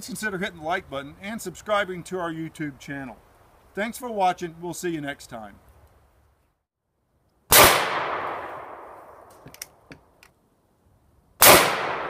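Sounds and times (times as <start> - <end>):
gunshots with long echo: 7.5 - 9.3, 11.4 - 12.0.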